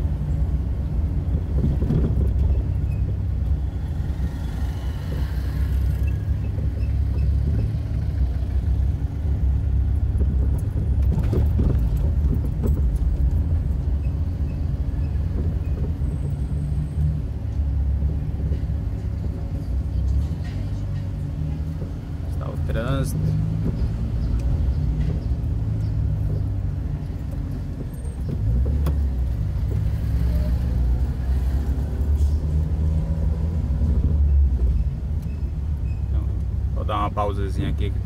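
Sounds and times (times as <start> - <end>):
car engine and tyre rumble: 0.0 - 38.0
short knocks and rattles: 10.1 - 13.5.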